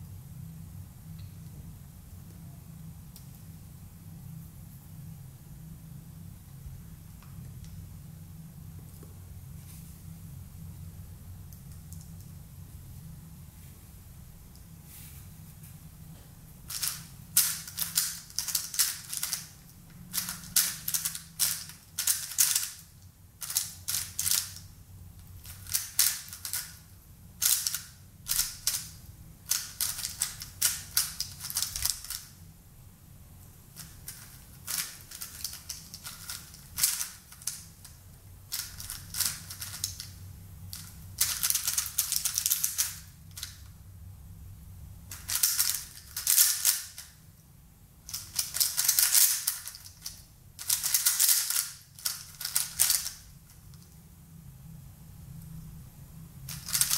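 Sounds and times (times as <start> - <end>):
puzzle cube clicking turns: 16.7 - 22.8, 23.4 - 24.7, 25.4 - 26.8, 27.4 - 32.3, 33.8 - 40.2, 40.8 - 43.6, 45.1 - 47.1, 48.1 - 53.3, 56.5 - 56.9.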